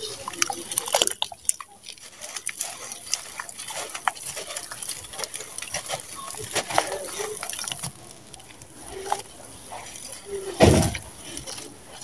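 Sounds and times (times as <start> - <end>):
gritty crackles: 0.0 - 12.0
wet squelches of sand-cement: 0.0 - 12.0.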